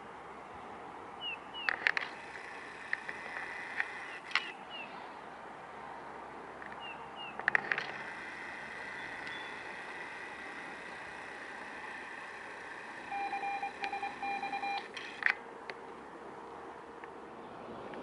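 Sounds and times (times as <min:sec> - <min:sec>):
sharp clicks: 0:01.6 - 0:04.6, 0:06.6 - 0:10.1, 0:13.8 - 0:15.8
faint steady tone: 0:06.8 - 0:15.2
short electronic beeps: 0:13.1 - 0:14.9.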